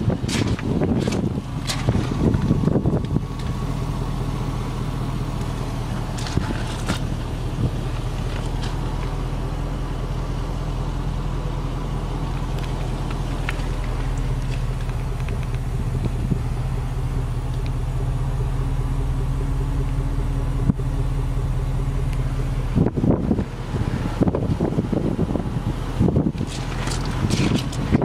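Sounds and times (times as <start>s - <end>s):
car engine idling: 0.0s - 28.0s.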